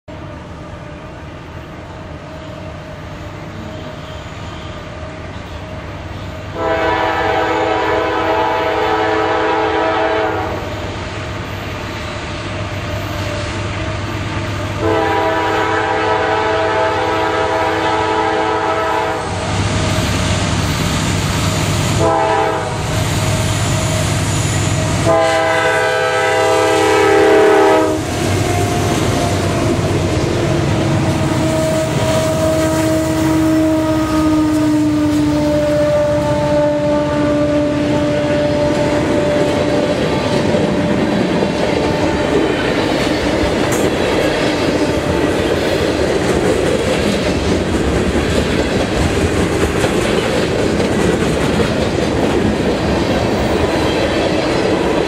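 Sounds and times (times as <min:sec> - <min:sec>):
train air horn blasts: 0:06.2 - 0:11.0, 0:14.6 - 0:20.1, 0:21.4 - 0:40.8
locomotive engine rumble: 0:26.2 - 0:53.8.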